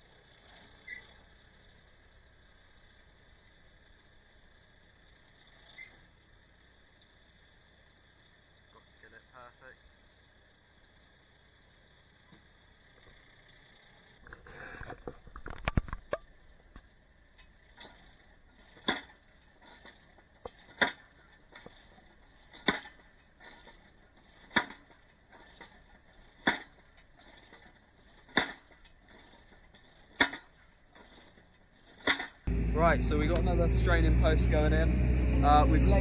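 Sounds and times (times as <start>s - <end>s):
clatter of small knocks: 14.2s - 32.5s.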